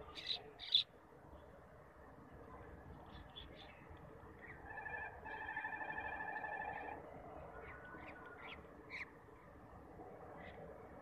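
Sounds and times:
small birds chirping: 0.0 - 1.6.

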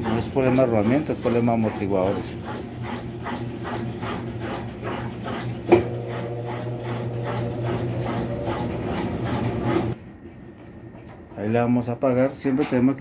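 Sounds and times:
washing machine spinning: 0.0 - 10.0.

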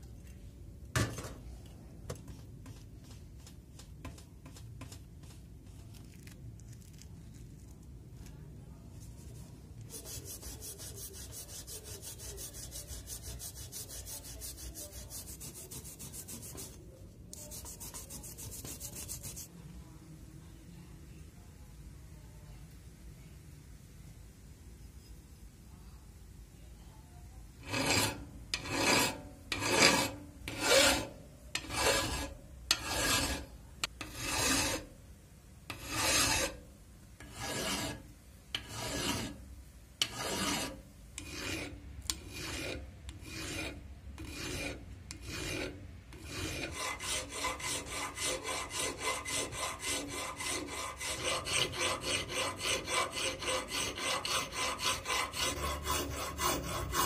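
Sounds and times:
hand file rasping on steel: 9.9 - 16.8, 17.4 - 19.5, 27.6 - 34.9, 35.7 - 36.6, 37.2 - 38.0, 38.6 - 39.4, 40.0 - 57.0.

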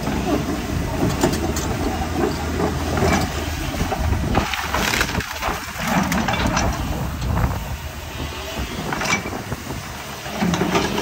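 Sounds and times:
excavator diesel engine running: 0.0 - 11.0
wood cracking and crunching: 3.8 - 6.9.

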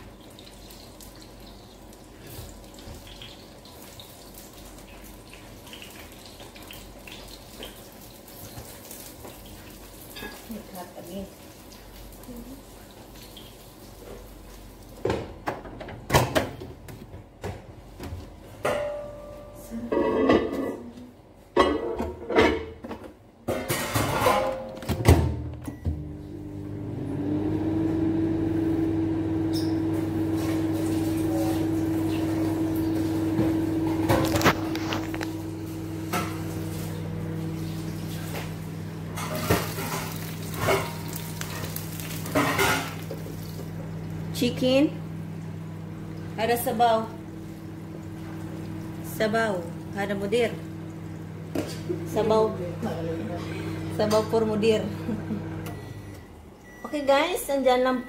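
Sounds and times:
low appliance hum: 0.0 - 58.0
kitchen knocks and clacks: 21.5 - 25.4
cookware clinking and knocking: 23.5 - 24.8.

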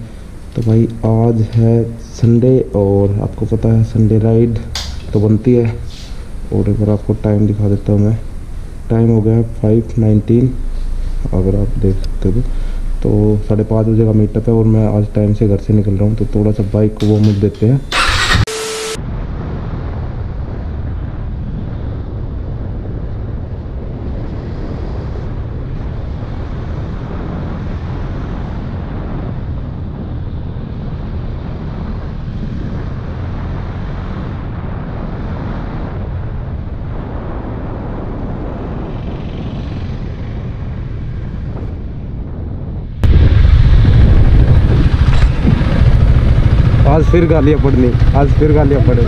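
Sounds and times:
wind rushing over microphone: 0.0 - 18.4, 19.0 - 49.0
motorcycle engine running: 4.0 - 19.0, 43.0 - 49.0.

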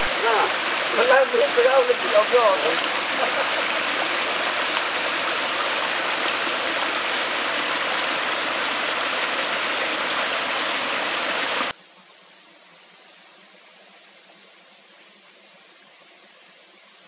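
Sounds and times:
stream water rushing: 0.0 - 11.7
faint hiss: 0.0 - 17.0.

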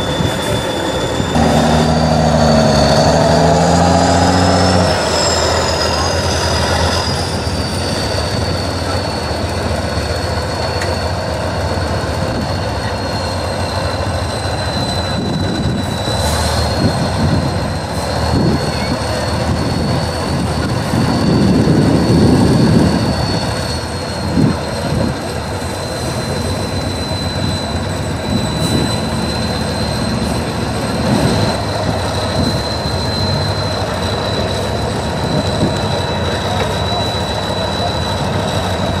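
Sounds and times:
high whine: 0.0 - 11.6
truck diesel engine labouring: 0.0 - 39.0.

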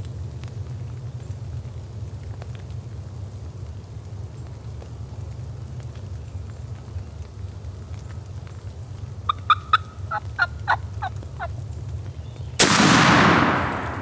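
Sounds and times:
turkey gobbling: 9.2 - 11.6
shotgun blast: 12.6 - 14.0.

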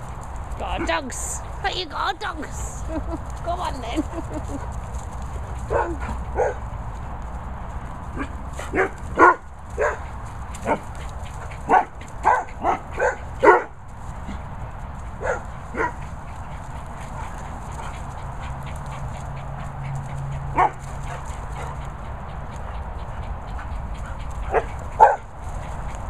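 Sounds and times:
dogs barking: 5.3 - 7.0, 8.0 - 26.0.

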